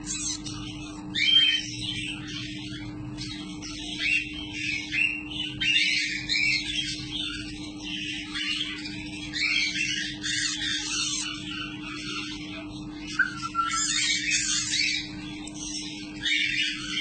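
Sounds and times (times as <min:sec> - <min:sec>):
parrot chick begging cheeps: 0:13.2 - 0:14.5.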